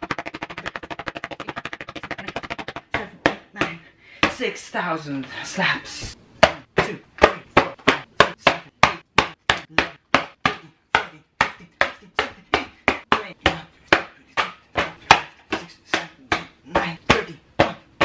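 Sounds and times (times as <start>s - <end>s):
hand slapping paper: 0.0s - 3.4s.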